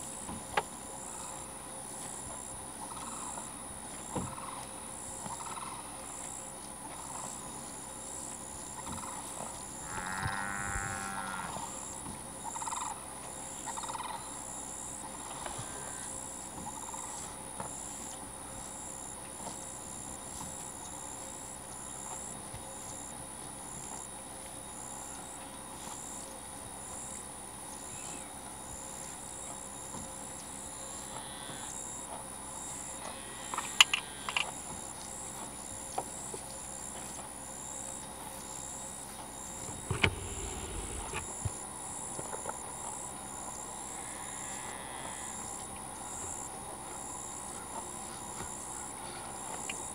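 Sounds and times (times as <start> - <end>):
constant high hum: 0.0 - 49.9
insects chirping: 0.0 - 49.9
low animal call: 39.8 - 41.4.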